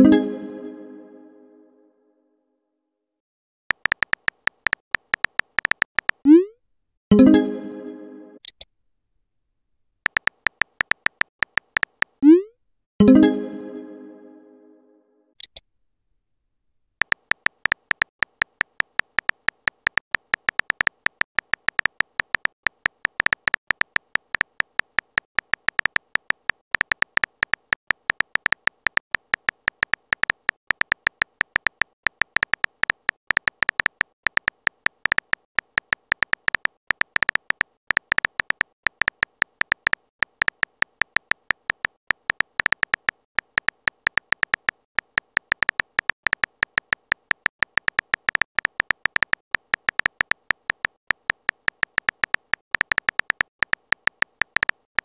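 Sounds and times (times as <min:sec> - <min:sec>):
phone keyboard key taps: 0:03.7 - 0:06.2, 0:10.1 - 0:12.2, 0:17.0 - 0:55.0.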